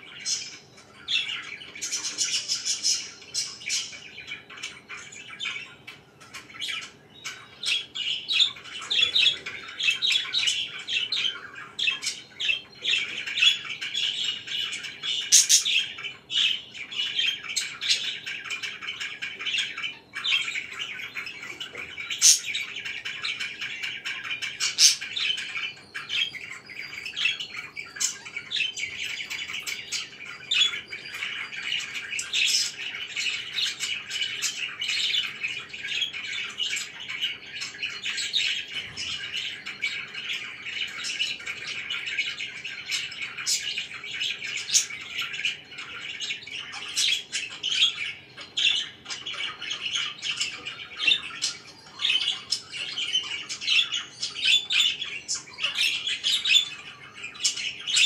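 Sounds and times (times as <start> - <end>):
budgerigars chattering: 0.0 - 58.0.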